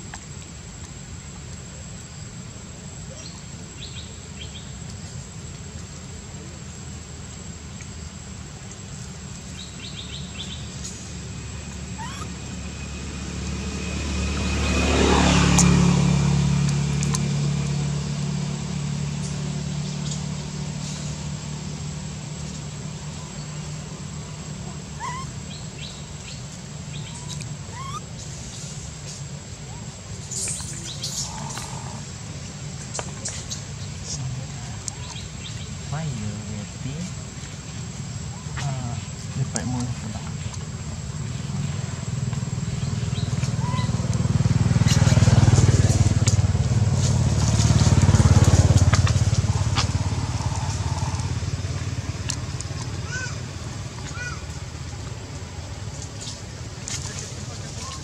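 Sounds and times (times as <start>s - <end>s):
steady low hum: 0.0s - 58.0s
short rising animal chirps: 11.9s - 12.4s, 25.0s - 25.4s, 26.9s - 28.1s
engine running with rapid pulse: 41.4s - 58.0s.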